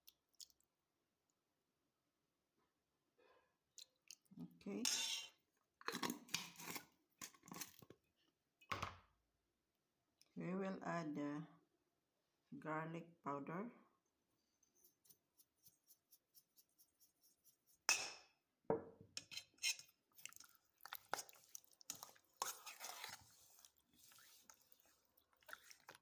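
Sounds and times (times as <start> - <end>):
wet squishing of meat: 0.0 - 0.7, 19.9 - 26.0
spoon scraping metal bowl: 4.8 - 5.3, 5.9 - 6.8, 14.4 - 17.9, 19.2 - 20.0, 21.0 - 26.0.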